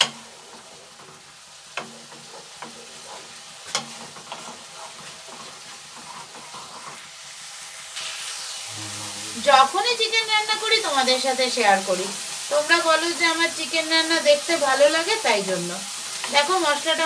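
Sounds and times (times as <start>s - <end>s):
wooden spatula scraping a pan: 0.0s - 7.2s
spice paste sizzling in oil: 0.0s - 17.0s.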